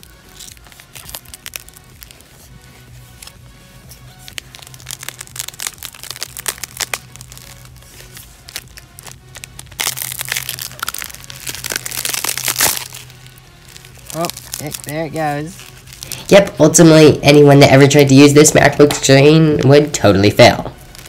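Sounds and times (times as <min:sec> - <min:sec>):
aluminium lid crackling and crunching: 0:00.0 - 0:02.2, 0:04.2 - 0:16.3, 0:20.8 - 0:21.0.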